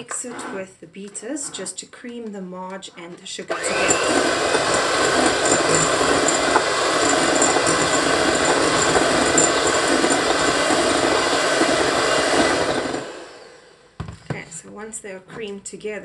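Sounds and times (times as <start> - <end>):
electric hand mixer running: 3.5 - 13.9.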